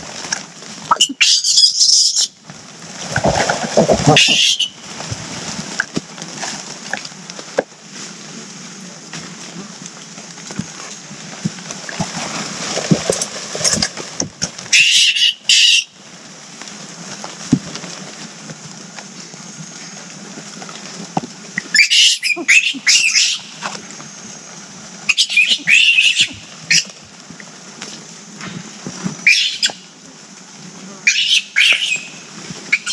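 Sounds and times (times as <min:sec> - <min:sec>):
background hiss: 0:00.0 - 0:32.9
monkeys high-pitched calls: 0:00.9 - 0:02.4, 0:04.1 - 0:04.8, 0:14.7 - 0:15.9, 0:21.7 - 0:23.6, 0:25.1 - 0:27.0, 0:29.2 - 0:29.9, 0:31.0 - 0:32.9
rustling and knocks: 0:02.4 - 0:04.2, 0:10.5 - 0:14.7, 0:17.1 - 0:19.0.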